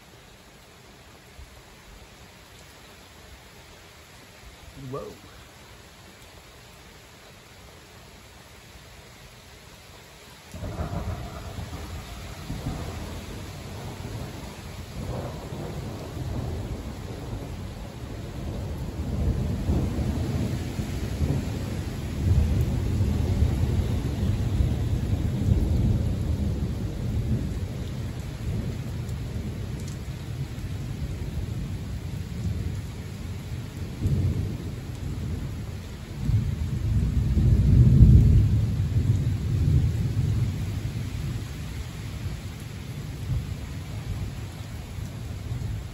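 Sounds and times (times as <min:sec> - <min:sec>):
steady rain: 0:00.0 - 0:45.9
thunder rumbling: 0:10.6 - 0:41.6.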